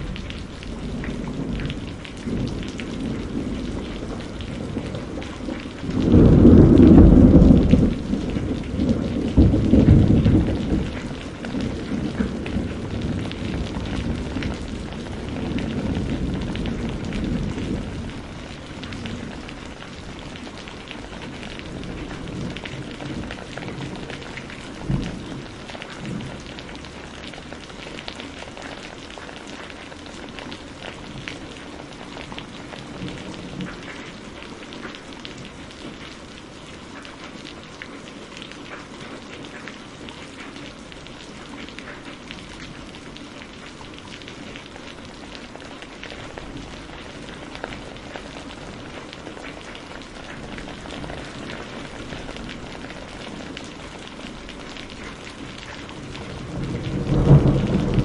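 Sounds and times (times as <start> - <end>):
thunder rumbles: 0.0 - 36.3, 42.1 - 58.0
steady rain: 0.0 - 58.0.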